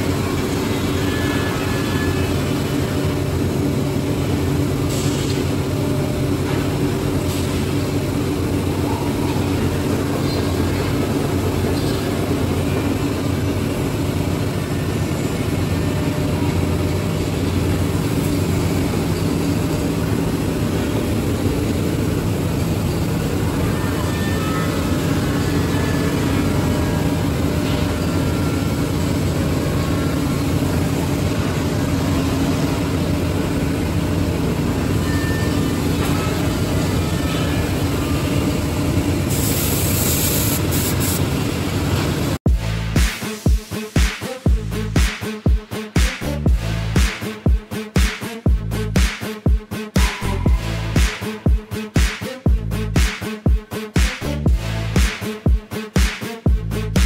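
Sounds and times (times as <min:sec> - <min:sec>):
cnc router humming: 0:00.0 - 0:42.4.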